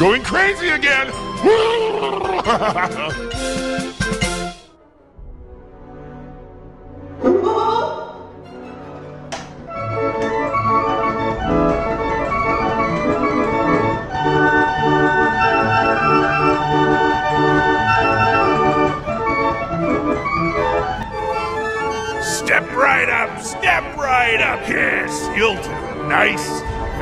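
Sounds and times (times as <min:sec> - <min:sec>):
organ chords pulsing: 0:08.3 - 0:27.0.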